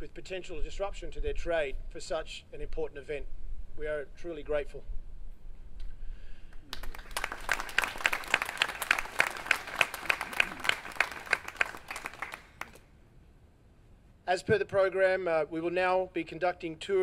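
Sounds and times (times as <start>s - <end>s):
loud nearby claps: 6.5s - 12.8s
audience applauding: 6.7s - 12.8s.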